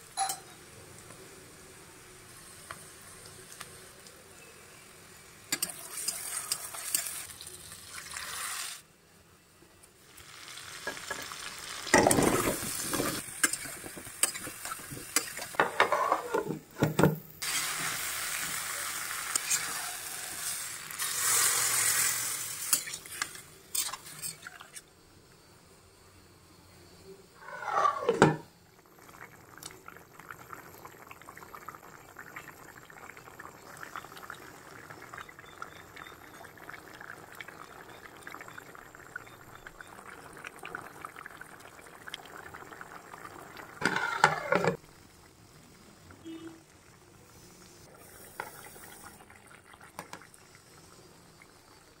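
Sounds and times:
curry bubbles popping: 28.8s - 45.3s, 48.6s - 50.7s.

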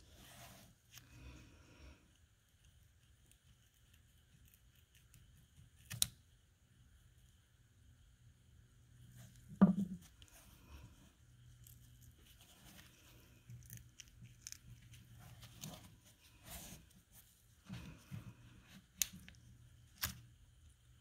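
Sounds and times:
metal cap knocking on wooden bench: 9.6s - 10.0s.

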